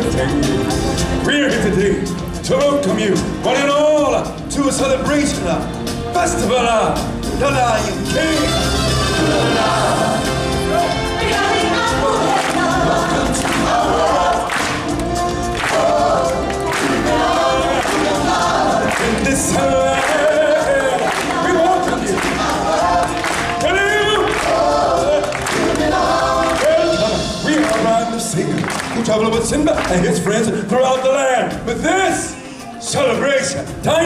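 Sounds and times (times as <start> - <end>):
steady drum beat: 0.0 - 30.7
choir singing: 8.4 - 29.2.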